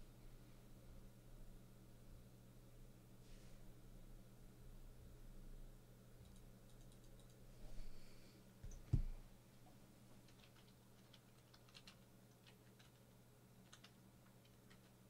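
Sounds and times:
soft knock: 8.9s - 9.2s.

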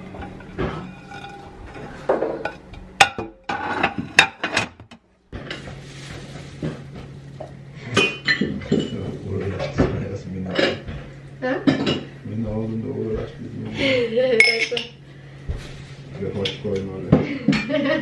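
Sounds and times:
ceramic plates clinking: 0.0s - 4.8s, 7.9s - 9.2s, 10.5s - 11.0s, 14.4s - 15.0s
dishes clattering: 0.0s - 12.2s, 14.4s - 15.0s, 16.3s - 18.0s
steady low hum: 0.0s - 18.0s.

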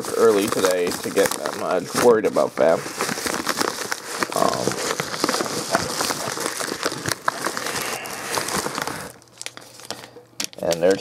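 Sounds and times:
paper packaging crinkling: 0.0s - 11.0s.

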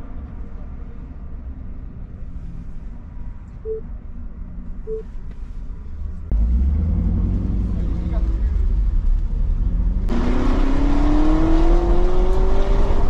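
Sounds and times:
short electronic beeps: 3.6s - 3.9s, 4.9s - 5.1s.

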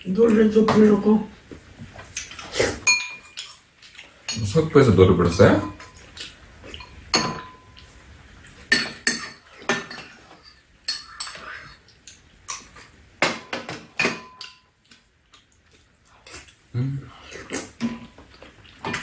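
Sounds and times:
utensils clinking on ceramic bowls: 2.8s - 3.6s, 4.2s - 7.9s, 8.7s - 11.8s, 12.5s - 14.7s.

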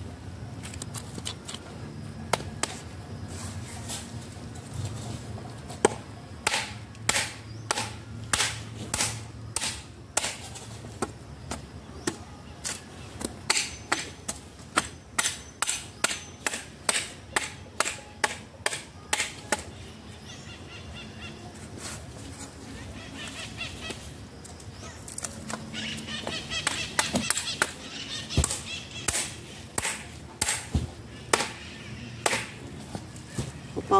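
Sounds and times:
hand tool chopping tree trunk: 5.8s - 19.7s, 26.6s - 27.8s, 28.4s - 31.6s, 32.2s - 32.6s.

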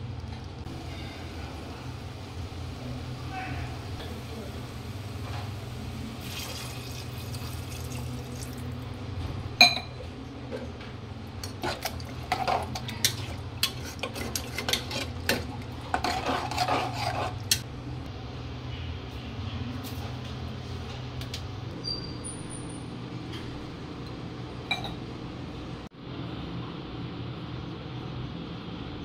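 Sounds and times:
ladle clinking and scraping pot: 11.4s - 17.6s.

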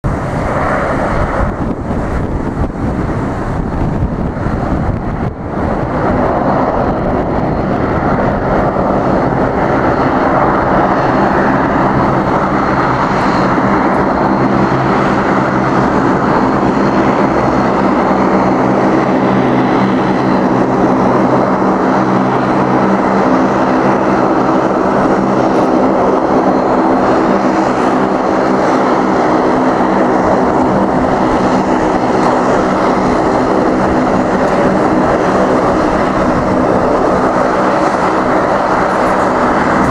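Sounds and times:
propeller aircraft hum: 0.0s - 39.9s.

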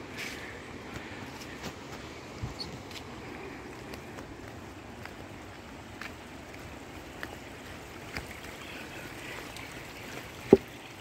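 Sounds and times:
rushing water: 0.0s - 11.0s.

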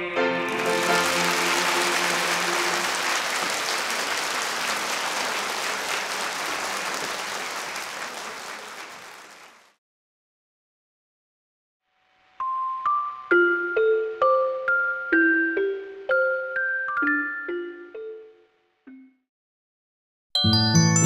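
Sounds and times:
piano: 0.0s - 3.8s
audience applauding: 0.3s - 9.8s.

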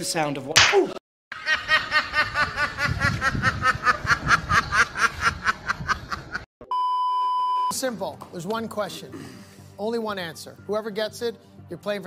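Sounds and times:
steady high-pitched beep: 6.7s - 7.8s.

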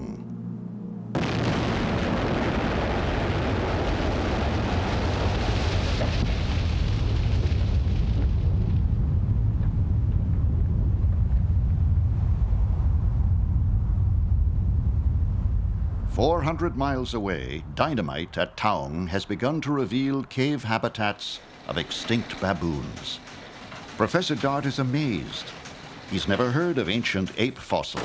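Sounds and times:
low rumble: 0.0s - 27.4s
explosion and falling rock: 1.2s - 12.1s.

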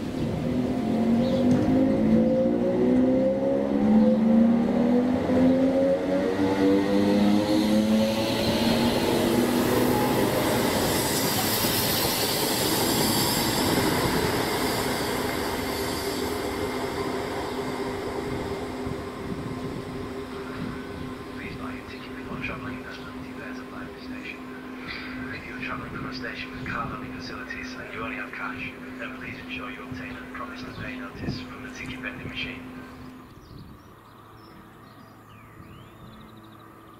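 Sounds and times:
wheel and rail noise: 0.0s - 26.0s
electric train motors whining: 0.0s - 31.6s.

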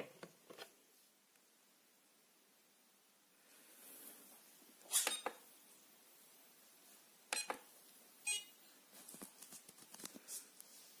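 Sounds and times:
short electronic beep: 8.3s - 8.6s.

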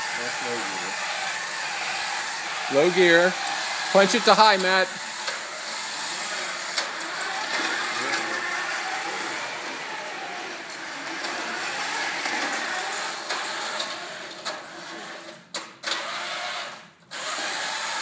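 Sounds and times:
robot motors whirring: 0.0s - 14.3s.

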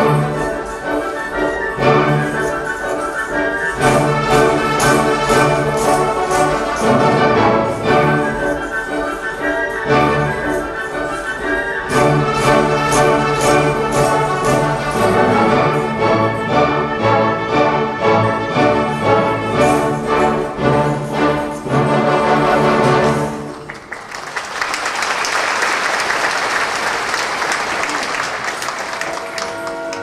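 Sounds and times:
orchestra playing dance music: 0.0s - 23.7s
audience applauding: 23.4s - 30.0s.

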